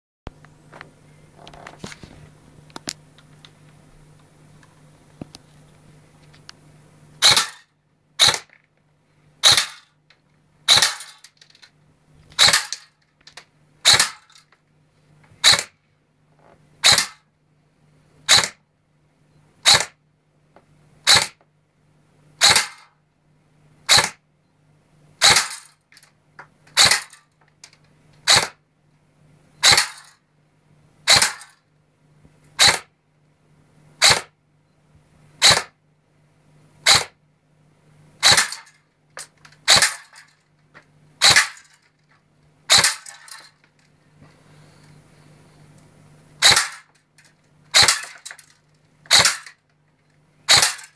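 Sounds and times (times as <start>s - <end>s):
faint low hum: 0.3s - 50.9s
airsoft rifle shots: 7.2s - 8.6s, 9.4s - 9.9s, 10.7s - 11.4s, 12.4s - 12.9s, 13.8s - 14.4s, 15.4s - 15.8s, 16.8s - 17.2s, 18.3s - 18.6s, 19.6s - 20.0s, 21.0s - 21.4s, 22.4s - 23.0s, 23.9s - 24.2s, 25.2s - 25.8s, 26.7s - 27.3s, 28.2s - 28.6s, 29.6s - 30.2s, 31.0s - 31.6s, 32.6s - 32.9s, 34.0s - 34.4s, 35.4s - 35.8s, 36.8s - 37.2s, 38.2s - 40.3s, 41.2s - 41.8s, 42.7s - 43.6s, 46.4s - 47.0s, 47.7s - 48.5s, 49.1s - 49.6s, 50.5s - 50.9s.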